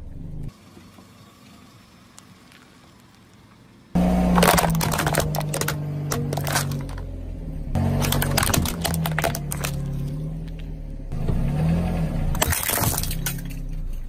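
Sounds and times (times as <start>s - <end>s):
tyre crushing hard plastic: 4.0s - 7.0s, 7.8s - 10.1s, 12.4s - 13.6s
plastic cups shattering: 4.2s - 7.0s, 7.9s - 10.2s, 12.4s - 14.0s.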